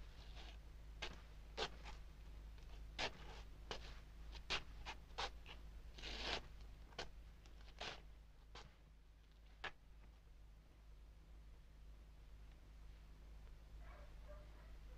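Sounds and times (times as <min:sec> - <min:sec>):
faint low hum: 0:00.0 - 0:14.9
short scratching sounds: 0:03.0 - 0:07.1, 0:07.7 - 0:08.8.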